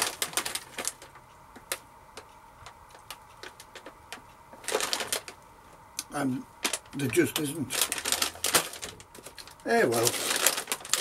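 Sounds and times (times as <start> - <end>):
plastic snack packet crinkling: 0.0 - 1.8, 4.6 - 5.4, 6.6 - 11.0.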